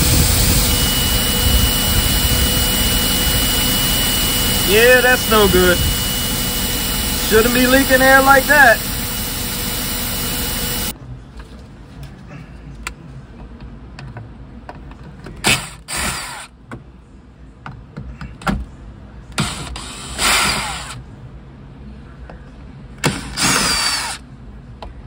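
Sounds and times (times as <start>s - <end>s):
power driver running: 0.0s - 10.9s, 19.4s - 21.0s, 23.0s - 24.2s.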